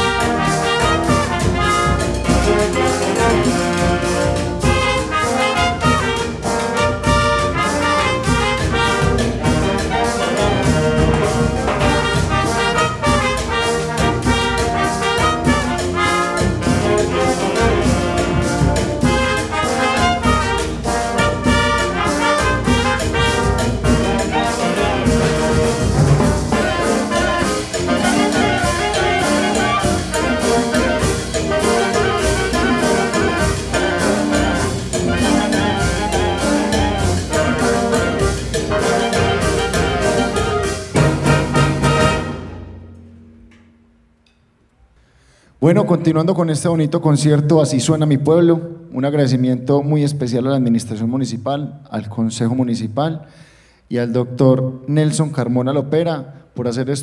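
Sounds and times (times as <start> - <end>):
wind band playing live: 0.0 - 44.0.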